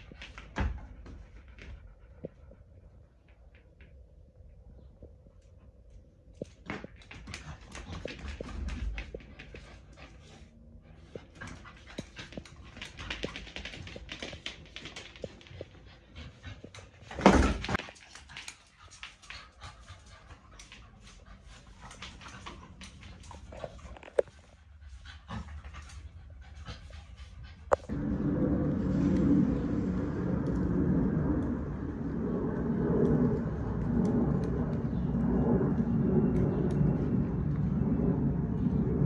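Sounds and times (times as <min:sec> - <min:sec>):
scuffs and clicks of paws and tug: 0:04.8 - 0:27.9
dog panting hard: 0:17.8 - 0:27.9.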